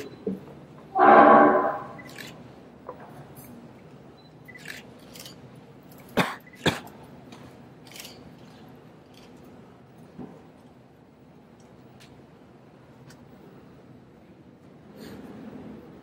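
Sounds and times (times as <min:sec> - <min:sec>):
low room noise: 0:00.0 - 0:16.0.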